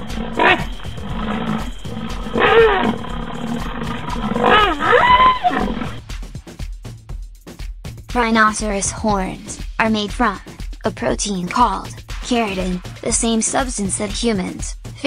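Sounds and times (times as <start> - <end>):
deep wild animal calls: 0.0 - 6.1
music with steady beat: 0.0 - 15.0.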